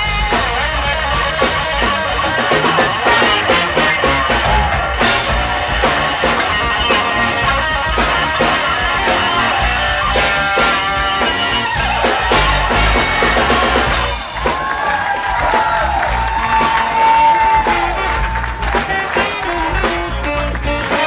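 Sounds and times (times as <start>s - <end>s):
electric guitar solo: 0.0s - 14.6s
big band playing funk: 0.0s - 21.0s.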